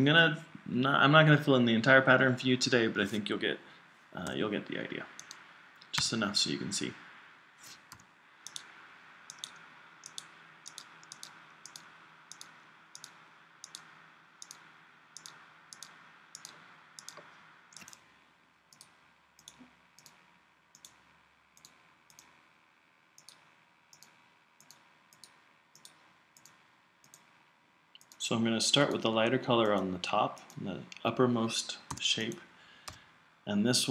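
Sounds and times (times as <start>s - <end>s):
computer mouse clicks: 5.2s - 6.2s, 7.7s - 8.7s, 9.3s - 18.0s, 18.7s - 21.0s, 21.6s - 22.4s, 23.2s - 27.3s, 32.8s - 33.0s.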